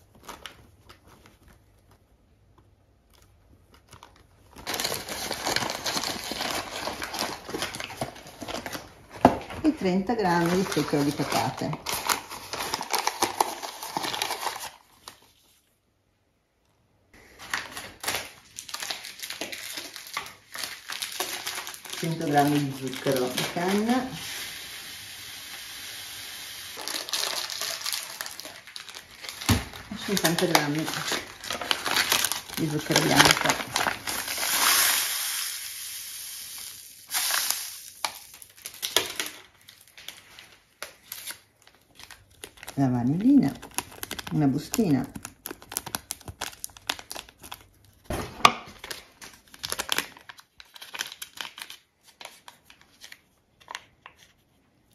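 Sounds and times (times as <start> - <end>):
food packaging crinkling: 0.0 - 15.7, 17.2 - 54.9
sugar pouring into bowl: 21.9 - 28.4, 34.0 - 38.4.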